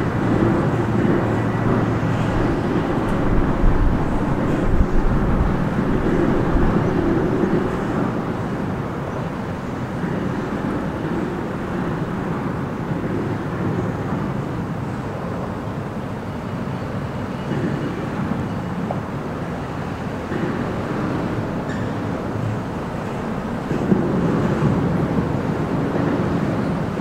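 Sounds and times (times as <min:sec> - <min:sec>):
traffic crossing bridge overhead: 0:00.0 - 0:27.0.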